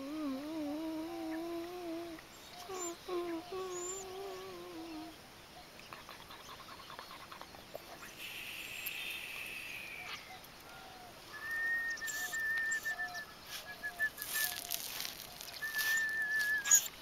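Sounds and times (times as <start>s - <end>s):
high thin animal calls: 11.9s - 17.0s.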